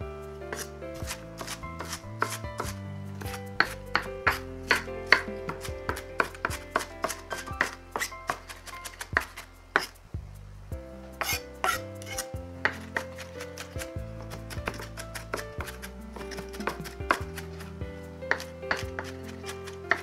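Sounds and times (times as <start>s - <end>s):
knife chopping on wooden board: 0.6s - 9.9s, 11.2s - 17.4s.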